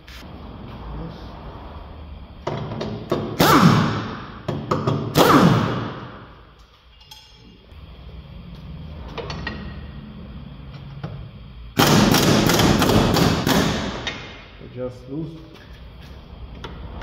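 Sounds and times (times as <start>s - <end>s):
impact wrench whine: 2.2s - 14.6s
metal tools clinking: 6.9s - 7.6s.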